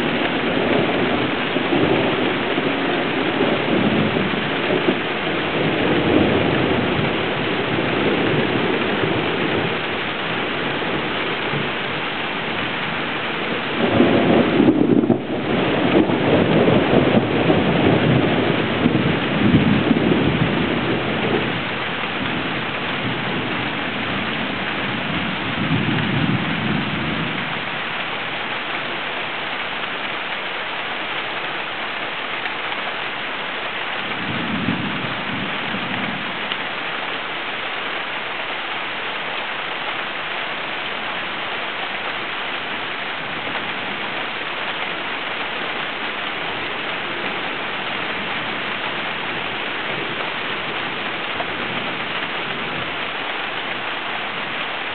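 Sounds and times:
thunder rumbling: 0.0s - 27.8s, 34.0s - 36.6s
heavy rain falling: 0.0s - 54.9s.

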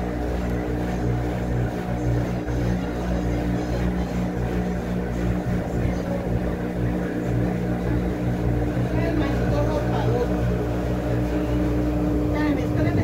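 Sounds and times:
washing machine motor humming: 0.0s - 13.0s.

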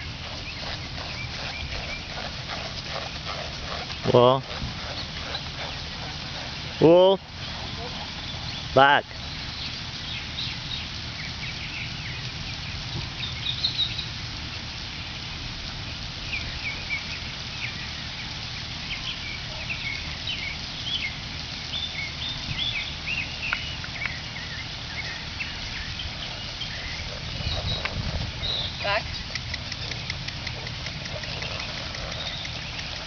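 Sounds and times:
background rumble: 0.0s - 8.7s
birds chirping: 0.0s - 14.2s, 16.2s - 33.0s.

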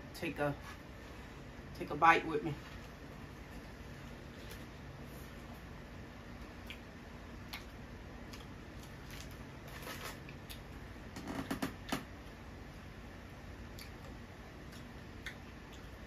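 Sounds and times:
chewing crunchy food: 6.3s - 10.9s, 13.7s - 16.0s.

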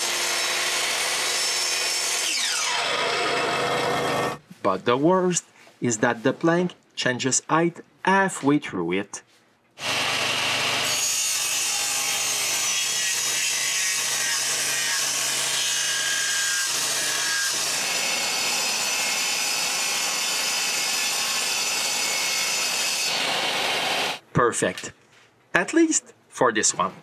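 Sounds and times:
power tool cutting wood: 0.0s - 4.4s, 9.8s - 24.2s.

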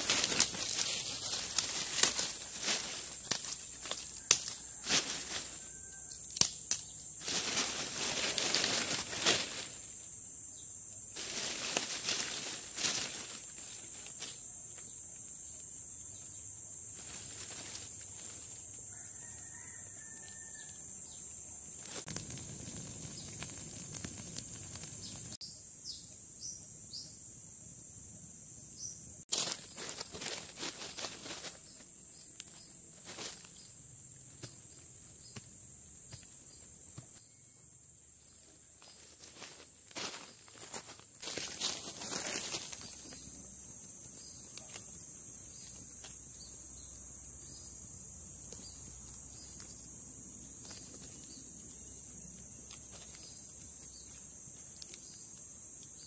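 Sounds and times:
dry leaves rustling and crackling: 0.0s - 10.0s, 11.1s - 14.5s, 16.9s - 20.7s, 21.8s - 25.4s, 29.3s - 33.6s, 38.8s - 43.3s.

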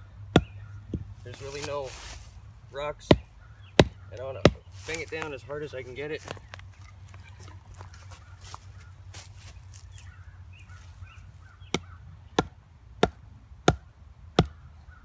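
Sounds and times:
wooden club knocking stake: 0.3s - 1.7s, 3.0s - 5.3s, 11.7s - 13.8s.

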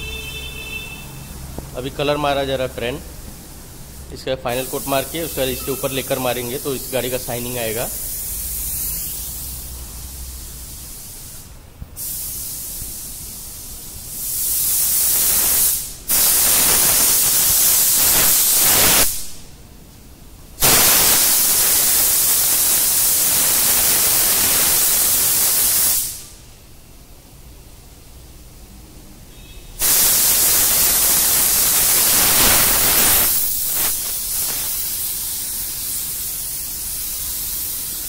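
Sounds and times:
paint spray gun hissing: 3.3s - 19.3s, 20.6s - 26.3s, 29.8s - 38.0s.

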